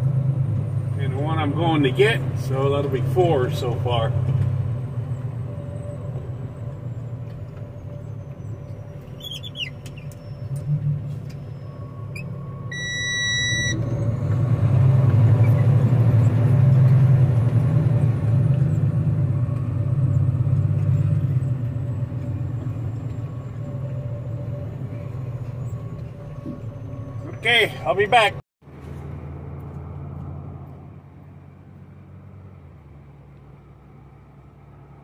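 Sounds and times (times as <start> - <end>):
electronic beep: 11.4 - 14.0.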